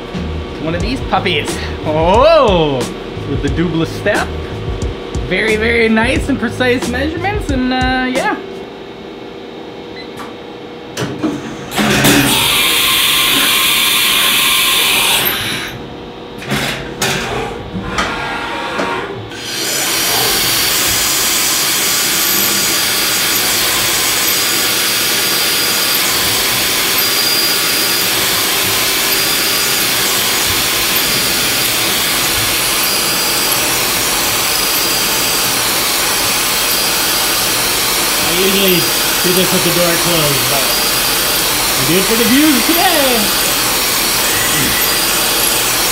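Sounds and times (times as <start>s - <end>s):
mill cutting metal: 11.7s - 15.8s, 19.3s - 45.9s.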